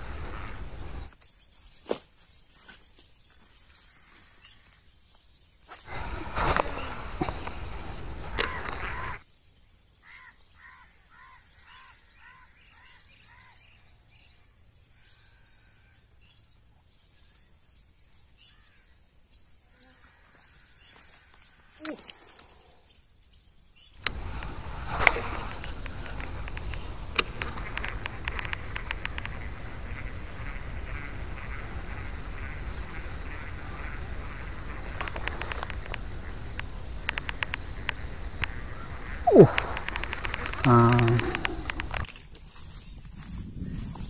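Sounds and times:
bird short calls: 5.9 - 9.2, 24.0 - 42.1
sharp click: 35.0 - 42.1.

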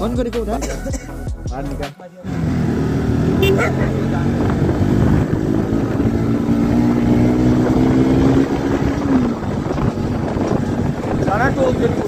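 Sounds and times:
motorcycle engine running: 2.5 - 12.0
wind rushing over microphone: 3.9 - 12.0.

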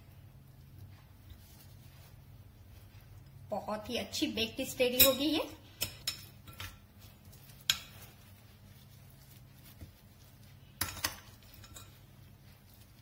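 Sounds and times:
metal spoon scraping a bowl: 10.8 - 12.3.

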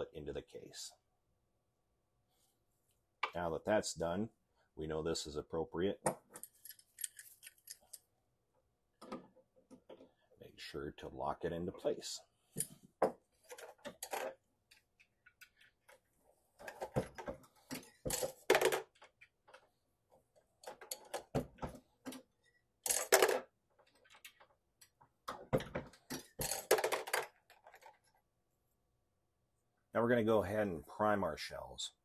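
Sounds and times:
metallic clicks and clatter: 6.2 - 8.0.

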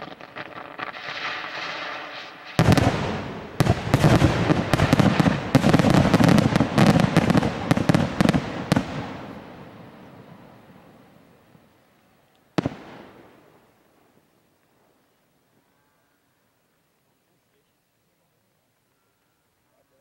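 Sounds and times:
fireworks bangs and crackling: 0.0 - 11.7, 12.5 - 14.2.

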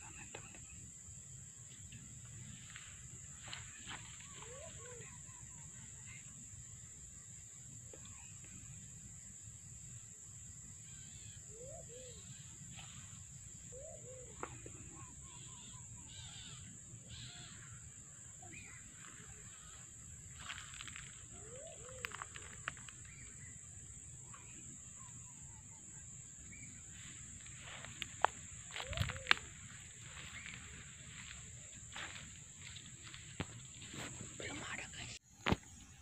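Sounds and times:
bird calls: 10.8 - 25.8, 26.4 - 35.1.

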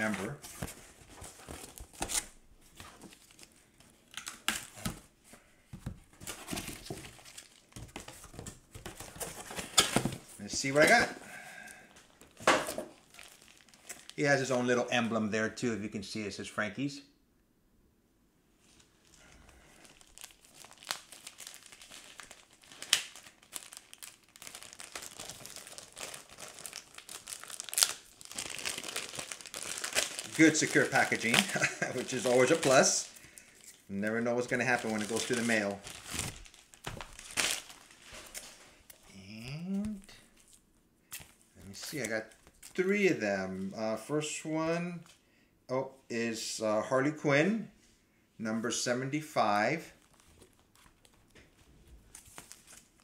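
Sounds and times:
cardboard package rustling and scraping: 0.0 - 3.5, 5.8 - 11.2
packaging crinkling and rustling: 0.0 - 5.1, 5.8 - 11.2, 11.9 - 14.2, 18.7 - 39.0, 39.9 - 43.0, 50.0 - 53.0.

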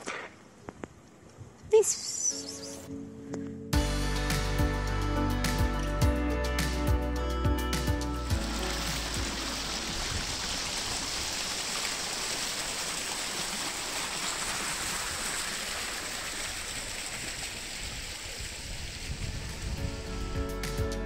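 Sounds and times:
running water: 7.8 - 20.9.

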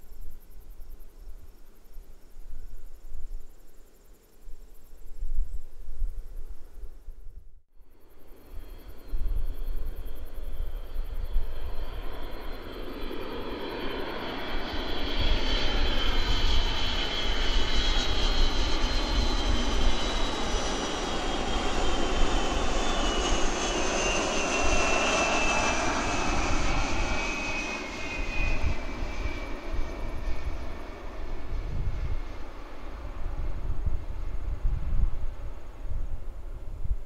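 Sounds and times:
jet aircraft roar and whine: 8.0 - 37.0.

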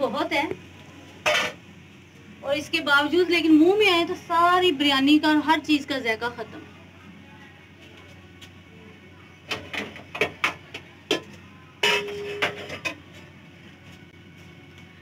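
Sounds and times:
ringing clank: 11.8 - 12.8.

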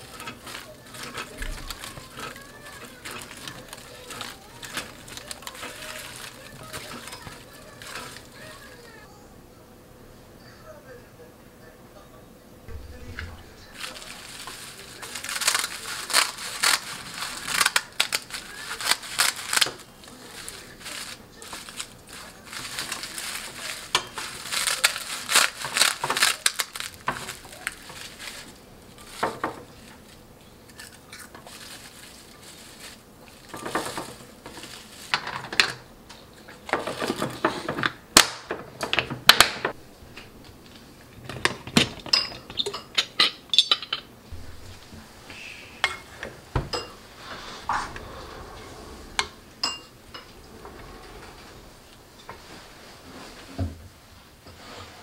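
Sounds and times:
dry seaweed sheets crackling: 0.0 - 9.1, 12.7 - 37.6, 44.3 - 45.9
metal tray and glass clinking: 41.3 - 44.9, 49.2 - 50.4.

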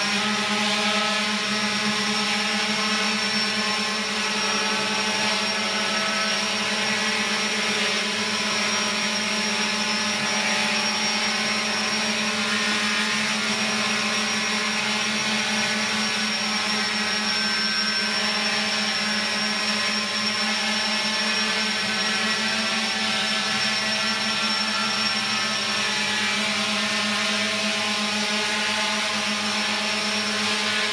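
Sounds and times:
drone propellers humming and whining: 0.0 - 30.9.

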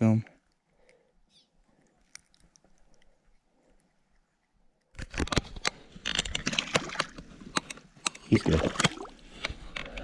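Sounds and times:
water splashing and sloshing: 6.2 - 9.8.

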